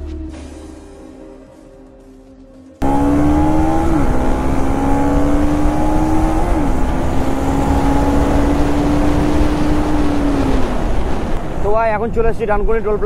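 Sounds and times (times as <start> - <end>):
motorcycle engine shifting gears: 2.8 - 11.7
wind rumble on microphone: 2.9 - 13.0.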